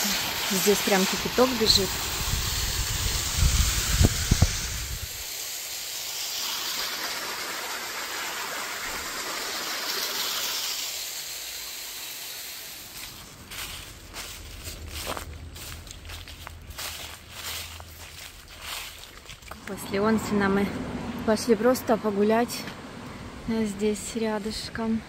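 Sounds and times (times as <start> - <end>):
waterfall rushing into pool: 0.0 - 13.4
low rumble: 13.3 - 21.9.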